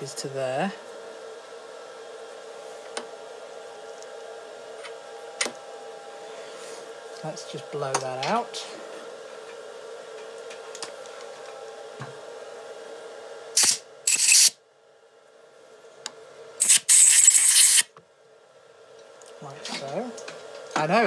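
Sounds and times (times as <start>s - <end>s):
compressed air hissing blasts: 13.6s - 14.6s, 16.6s - 17.9s.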